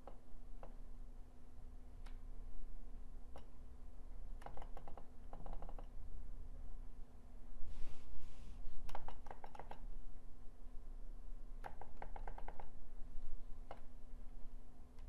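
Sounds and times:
steady low hum: 0.0 - 15.0
computer keyboard clicking: 4.4 - 5.9, 8.9 - 9.8, 11.6 - 12.7
soft rush of noise: 6.1 - 8.9.

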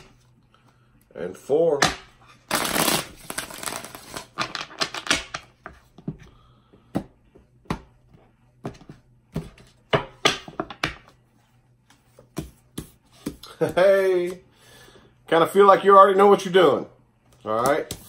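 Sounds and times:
cards being shuffled: 2.5 - 4.9.

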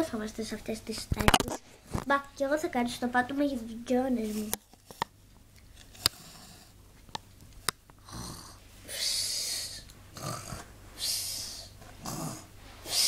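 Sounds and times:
person imitating snoring: 8.0 - 13.0.

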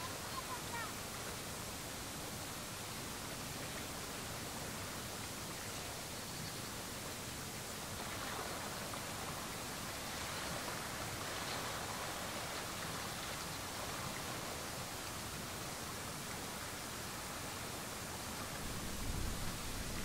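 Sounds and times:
steady outdoor hiss: 0.0 - 20.0.

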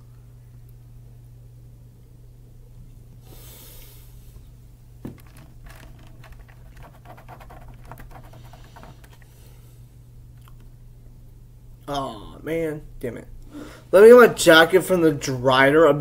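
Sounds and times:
low electrical hum: 0.0 - 16.0
soft breath out: 13.5 - 13.9.

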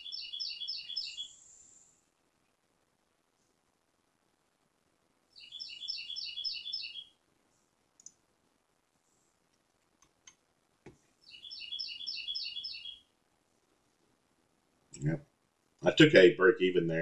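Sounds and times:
fast chirping trills: 0.0 - 1.5, 5.4 - 7.1, 11.2 - 13.0
sharp clicks: 8.0 - 8.2.

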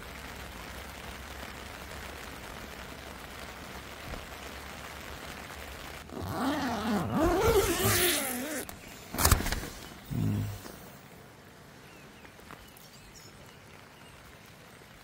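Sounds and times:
heavy rain on a tent: 0.0 - 15.0
short low vocal sound: 10.0 - 10.9.

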